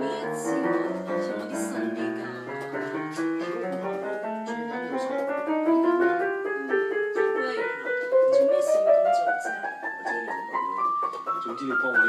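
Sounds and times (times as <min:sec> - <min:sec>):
electronic keyboard piano notes: 0:00.0 - 0:12.0.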